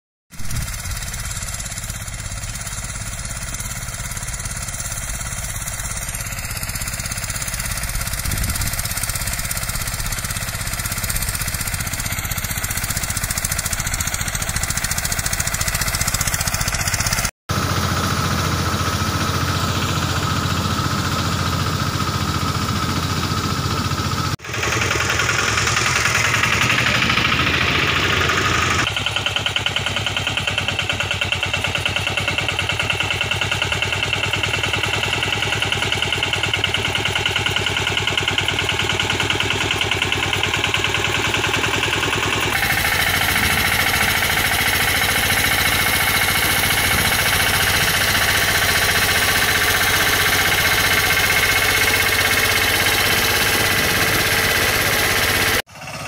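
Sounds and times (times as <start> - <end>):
mini tractor engine running: 0.3 - 56.0.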